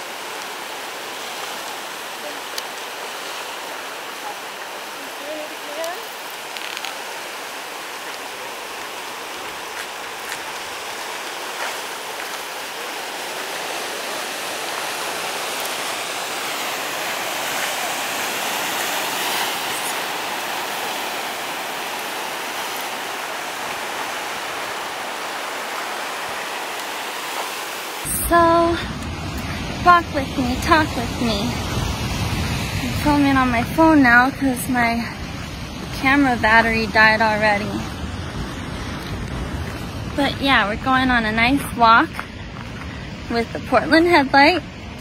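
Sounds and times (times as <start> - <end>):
surf breaking over rocks: 7.6 - 45.0.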